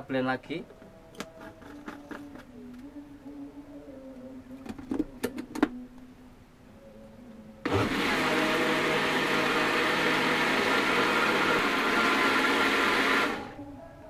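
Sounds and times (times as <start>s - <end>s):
blender motor grinding: 7.7s - 13.6s.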